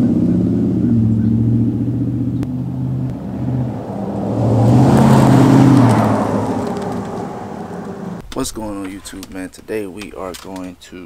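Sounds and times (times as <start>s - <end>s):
truck exhaust revving: 0.0s - 8.2s.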